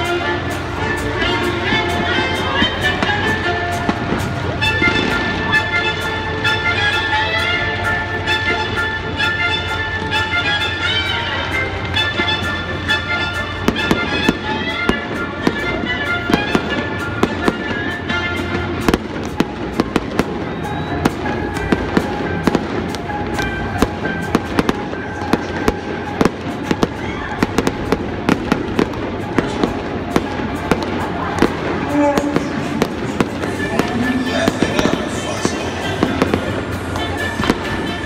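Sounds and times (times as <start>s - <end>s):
music with held notes: 0.0s - 38.0s
fireworks bangs: 8.1s - 38.0s.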